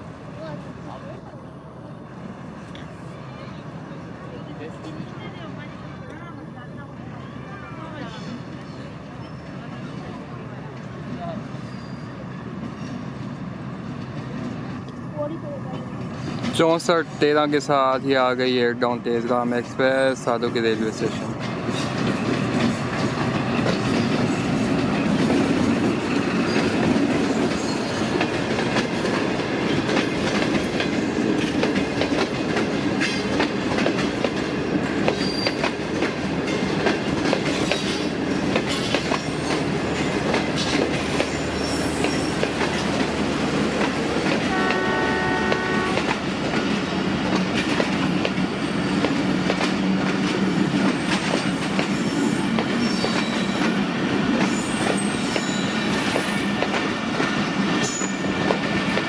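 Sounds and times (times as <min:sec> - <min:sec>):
diesel locomotive engine: 0:00.0 - 0:59.0
train wheels clacking over rail joints: 0:15.6 - 0:59.0
train horn blast: 0:44.4 - 0:46.2.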